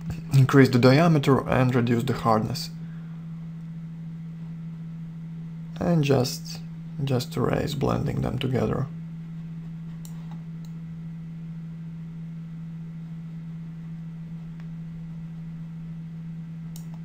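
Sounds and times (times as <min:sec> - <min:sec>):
low hum: 0:00.0 - 0:17.0
computer mouse clicks: 0:10.0 - 0:10.8, 0:16.7 - 0:17.0.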